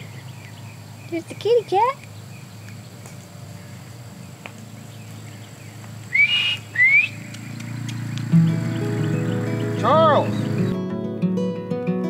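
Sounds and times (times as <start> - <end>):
person whistling rising notes: 6.1 - 7.2.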